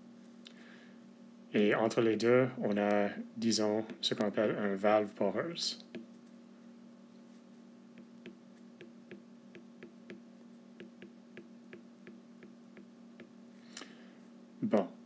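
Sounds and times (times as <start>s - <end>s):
steady low hum: 0.0s - 15.0s
stylus tapping on glass screen: 10.8s - 13.4s.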